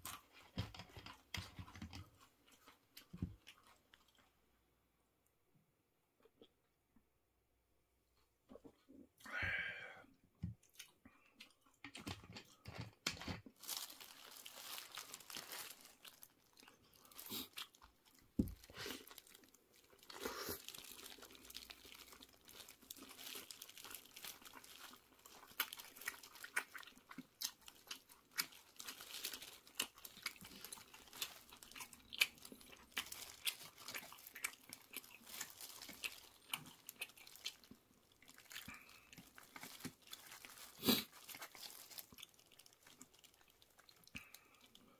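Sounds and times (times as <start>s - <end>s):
chewing and crunching chips: 0.0s - 4.5s, 10.5s - 44.9s
paper wrapper crinkling: 13.1s - 26.7s, 27.7s - 44.0s
plastic glove crinkling: 13.5s - 26.6s, 27.7s - 44.0s.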